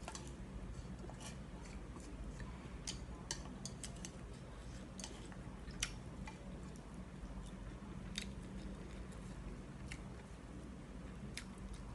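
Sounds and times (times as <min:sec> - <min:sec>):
low steady hum: 0:00.0 - 0:11.9
chopsticks clicking on a bowl: 0:02.8 - 0:04.2.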